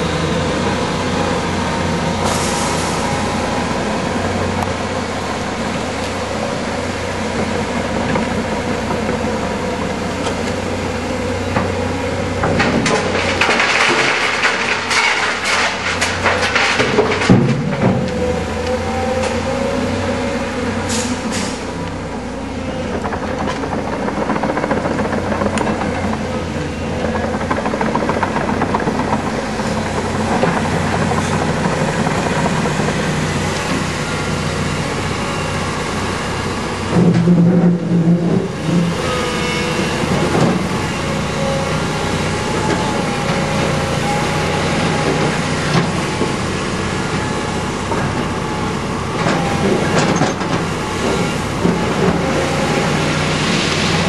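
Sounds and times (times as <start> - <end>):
excavator diesel engine running: 0.0 - 54.0.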